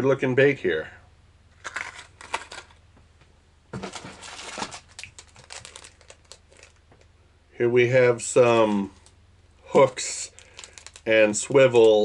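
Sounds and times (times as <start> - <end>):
plastic packages crinkling: 1.6 - 2.8, 3.8 - 7.1, 8.6 - 12.0.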